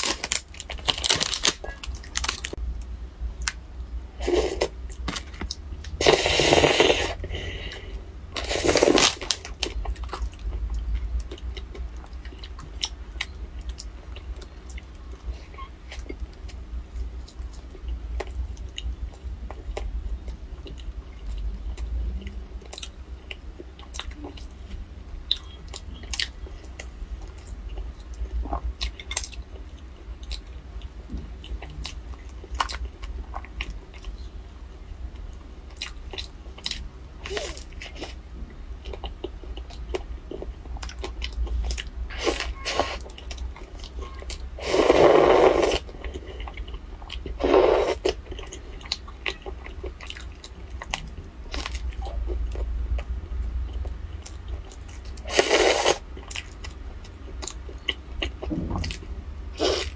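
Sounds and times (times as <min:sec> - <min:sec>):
low hum: 0:56.0 - 0:59.9.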